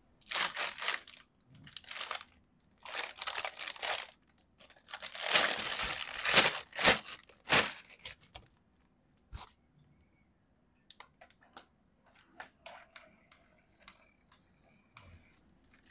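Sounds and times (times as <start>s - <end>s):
plastic wrapper crinkling: 0.2s - 8.6s.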